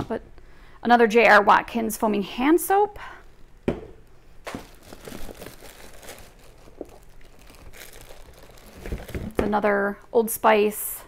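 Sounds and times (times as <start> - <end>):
packaging crinkling and rustling: 4.4 - 9.4.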